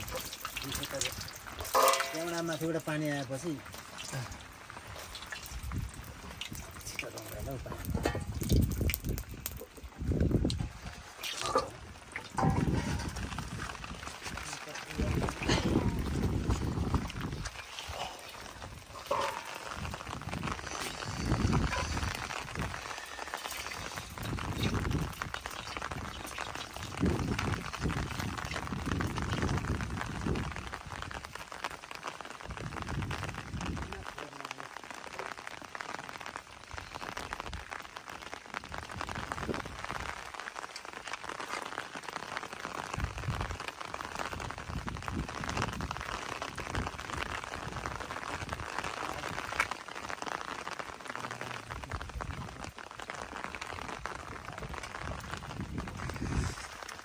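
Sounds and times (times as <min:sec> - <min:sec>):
rain pattering: 0:00.0 - 0:57.0
low rumbles: 0:04.3 - 0:22.9.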